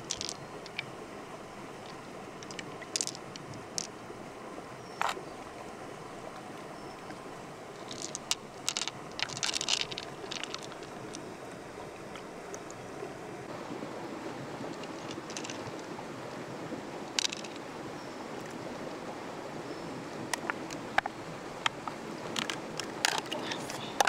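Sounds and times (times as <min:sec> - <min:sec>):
water splashes and clicks: 0:00.0 - 0:00.9, 0:01.8 - 0:04.0, 0:05.0 - 0:05.2, 0:07.8 - 0:12.8, 0:14.7 - 0:15.9, 0:17.1 - 0:17.6, 0:18.4 - 0:18.6, 0:20.3 - 0:24.0
river water flowing: 0:00.0 - 0:24.0.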